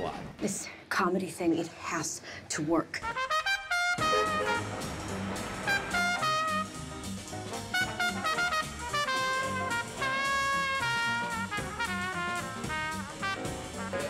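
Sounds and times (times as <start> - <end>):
horn playing melody: 3.0 - 14.0
pulsing bass line: 4.0 - 14.0.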